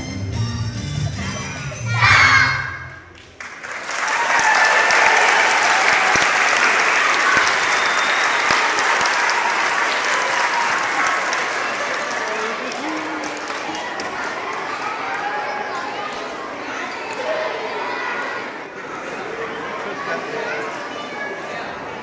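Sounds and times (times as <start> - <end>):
audience applauding: 3.1 - 15.3.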